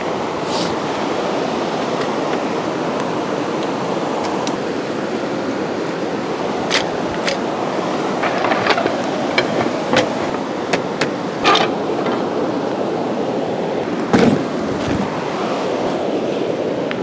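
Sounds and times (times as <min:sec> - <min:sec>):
wooden table clicks and knocks: 0:08.2 - 0:12.4.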